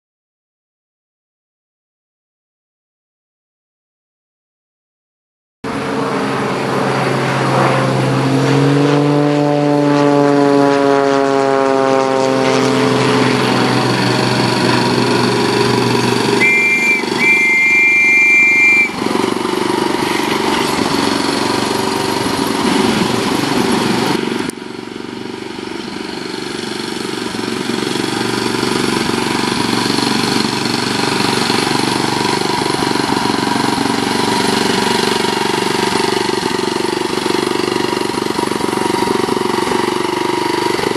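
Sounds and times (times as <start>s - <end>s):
miniature locomotive engine: 13.2s - 40.9s
locomotive horn toots: 16.2s - 19.2s.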